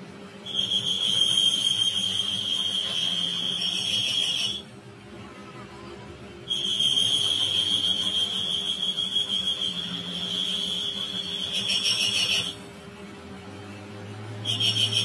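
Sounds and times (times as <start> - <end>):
lathe low hum: 0.0 - 15.0
lathe cutting tool squealing: 0.4 - 4.7, 6.5 - 12.7, 14.3 - 15.0.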